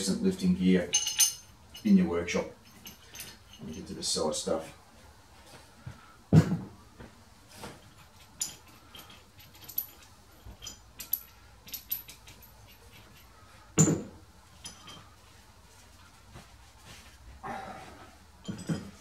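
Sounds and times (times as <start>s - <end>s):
small metal clinks and jangles: 0.8s - 4.0s, 7.6s - 16.1s, 18.4s - 19.0s.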